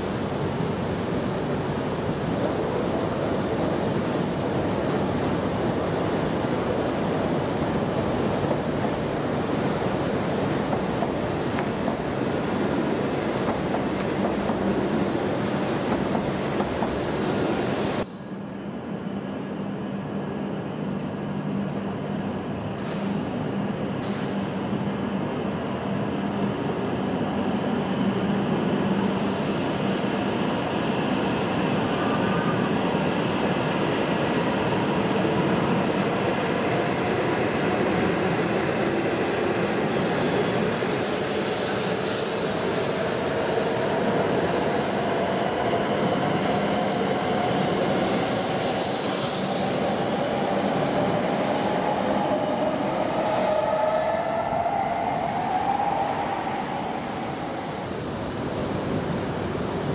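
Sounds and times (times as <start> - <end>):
rising train whine: 0.0 - 59.9
train rumble and hum: 0.0 - 59.9
air hisses: 29.0 - 30.6, 47.8 - 52.2.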